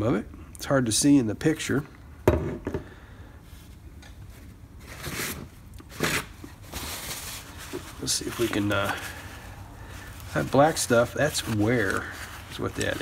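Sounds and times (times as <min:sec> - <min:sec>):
cloth rustling: 0:03.5 - 0:13.0.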